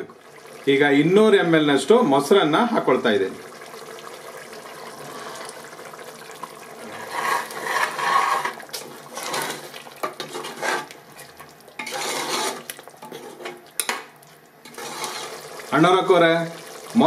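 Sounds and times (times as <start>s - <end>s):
metal spoon scraping pot: 6.9s - 11.0s, 11.8s - 14.0s, 14.6s - 15.5s.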